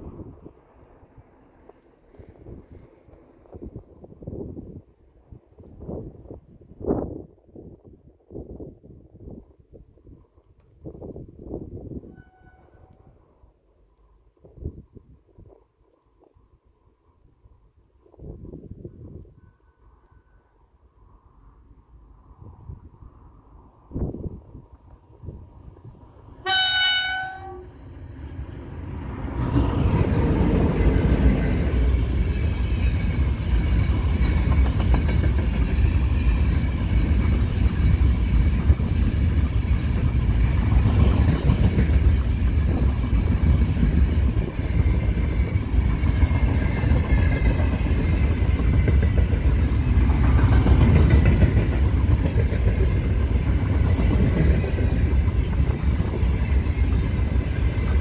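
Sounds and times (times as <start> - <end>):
locomotive horn blast: 12.1 - 13.1, 26.4 - 27.8
train wheels clattering on rails: 29.3 - 58.0.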